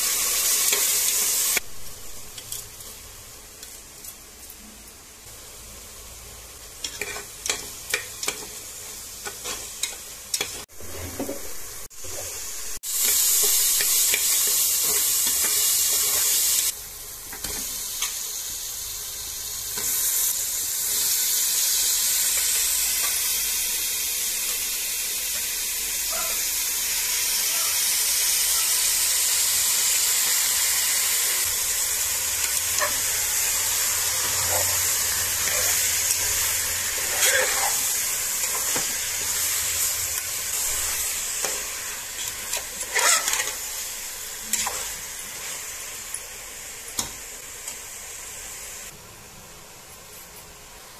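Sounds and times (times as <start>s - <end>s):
frying sizzle: 0.0s - 50.9s
ladle scraping metal pot: 42.5s - 43.6s.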